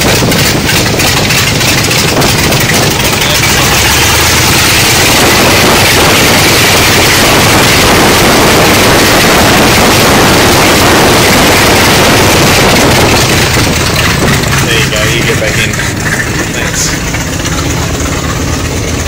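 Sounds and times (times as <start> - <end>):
rush of spray and wind: 0.0 - 15.2
aircraft engines droning: 0.0 - 19.0.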